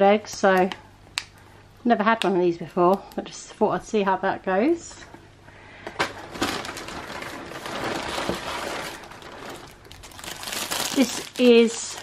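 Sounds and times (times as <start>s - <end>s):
plastic bag crinkling: 6.0s - 12.0s.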